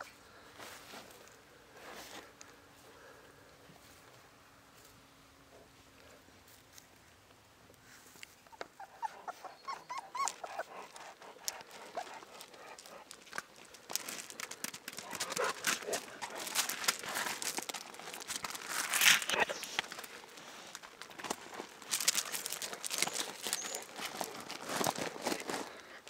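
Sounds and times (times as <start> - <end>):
puppy whimpering: 8.5 - 12.2
gravel crunching underfoot: 10.3 - 26.0.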